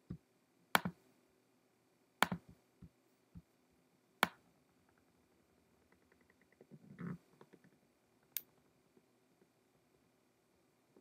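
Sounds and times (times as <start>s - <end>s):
computer mouse clicks: 0.8s - 1.0s, 2.2s - 2.4s.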